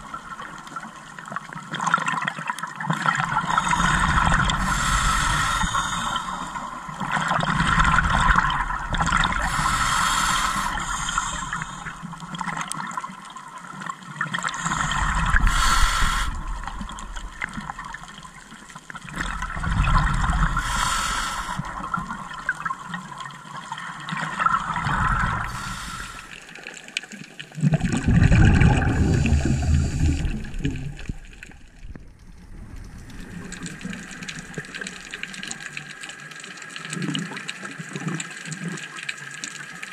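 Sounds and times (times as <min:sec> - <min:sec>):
exhaled air bubbling underwater: 0:00.0 - 0:39.9
regulator hiss: 0:09.4 - 0:12.0, 0:14.6 - 0:16.8, 0:20.6 - 0:21.8, 0:25.5 - 0:26.4.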